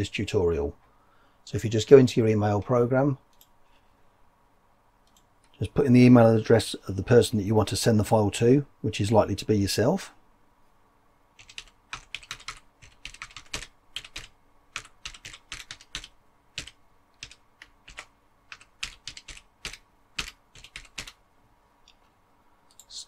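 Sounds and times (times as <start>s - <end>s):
typing on computer keyboard: 11.4s - 21.2s.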